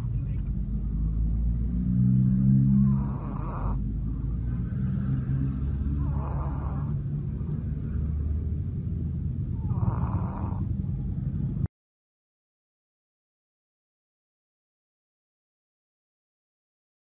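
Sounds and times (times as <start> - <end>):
steady low rumble: 0.0 - 1.8, 2.9 - 11.7
dog snoring: 2.5 - 4.0, 5.7 - 7.1, 9.5 - 10.7.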